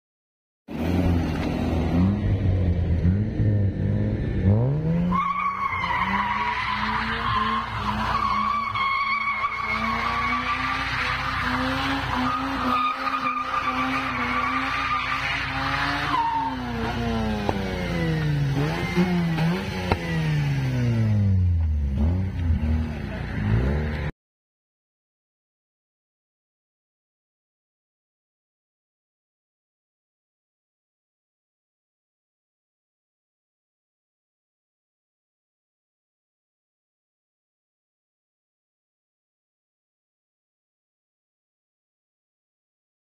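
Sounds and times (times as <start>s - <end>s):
rotary engine revving: 0.7s - 5.2s, 5.8s - 24.1s
tyres squealing: 5.1s - 16.9s.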